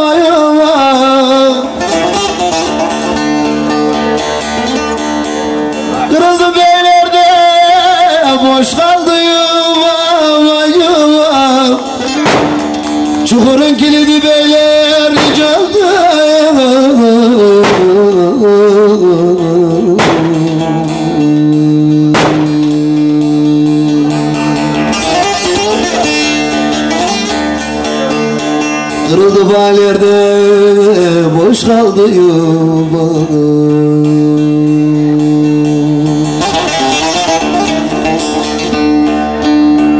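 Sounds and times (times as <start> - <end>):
man singing: 0.0 - 4.8, 5.8 - 27.3, 27.9 - 39.8
plucked long-necked lute: 0.0 - 39.9
lute strings struck: 11.8 - 13.6, 15.0 - 16.5, 17.5 - 18.4, 19.7 - 29.1, 34.0 - 39.9.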